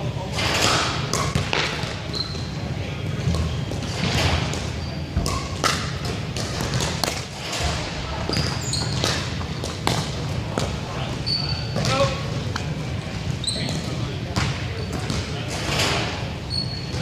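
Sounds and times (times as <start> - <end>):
balls popping on paddles and floor: 0.7 - 2.0, 3.2 - 7.3, 8.3 - 10.8
sneaker squeaks: 0.7 - 2.7, 3.3 - 6.0, 8.2 - 10.0, 11.0 - 12.4, 13.0 - 17.0.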